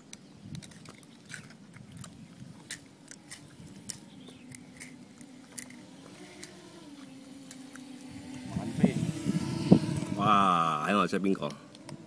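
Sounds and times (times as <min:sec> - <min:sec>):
distant drone motors humming: 0:02.4 - 0:12.0.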